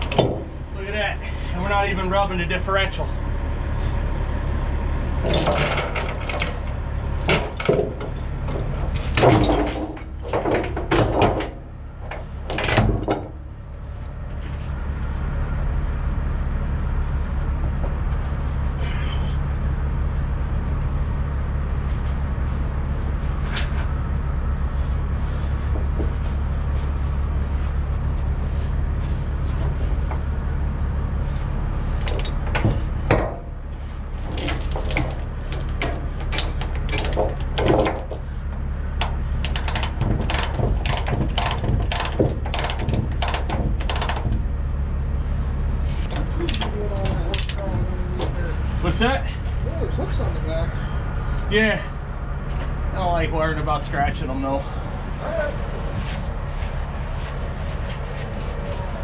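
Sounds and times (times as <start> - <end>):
chain clanking on wooden deck: 0.0 - 0.6, 5.2 - 13.4, 32.0 - 44.6, 46.1 - 48.4
steady low rumble: 0.0 - 59.0.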